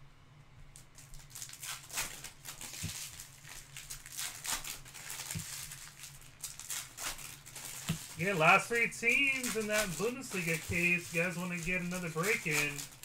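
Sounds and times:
cards rustling: 0:01.0 - 0:13.0
steady low hum: 0:07.2 - 0:13.0.

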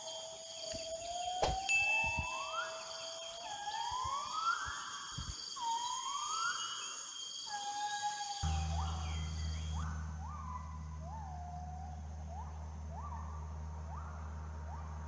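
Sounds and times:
high-pitched whine: 0:08.4 - 0:15.0
rising whooping calls: 0:08.4 - 0:15.0.

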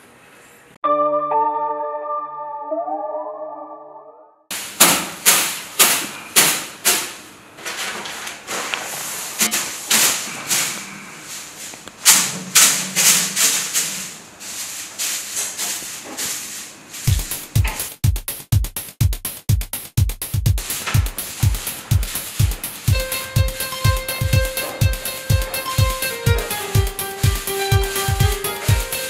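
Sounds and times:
hand broom swishing: 0:04.5 - 0:18.0, 0:20.6 - 0:29.0.

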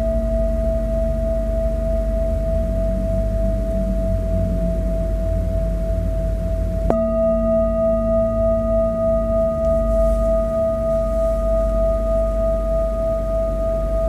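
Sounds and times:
metal singing bowl ringing: 0:06.8 - 0:14.0.

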